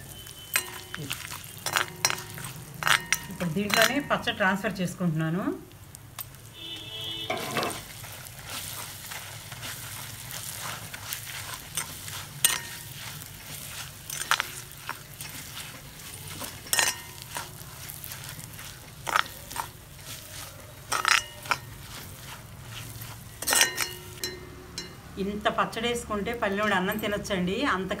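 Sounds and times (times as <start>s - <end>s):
spoon scraping a pan: 0.0s - 4.2s, 6.8s - 25.0s
oil sizzling in a pan: 0.0s - 28.0s.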